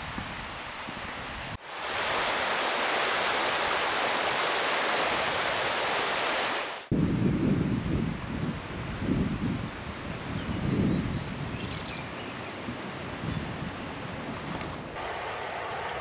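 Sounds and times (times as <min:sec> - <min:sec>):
soft river ambience: 0:01.6 - 0:06.9, 0:15.0 - 0:16.0
white water rushing: 0:01.6 - 0:06.9, 0:15.0 - 0:16.0.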